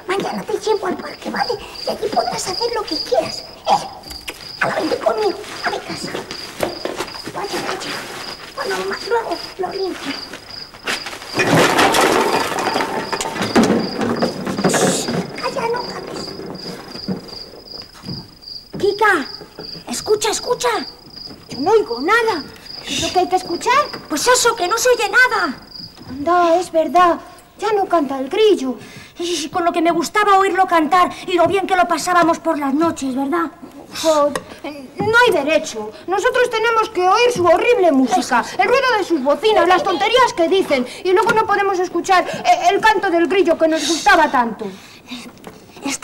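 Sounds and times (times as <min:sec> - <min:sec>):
cricket chirping: 0:00.0 - 0:33.2.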